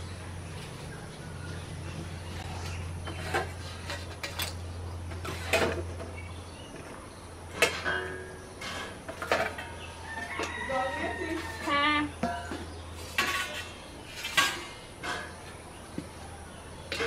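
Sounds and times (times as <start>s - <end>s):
steel plates and bowls clinking: 7.5s - 10.6s.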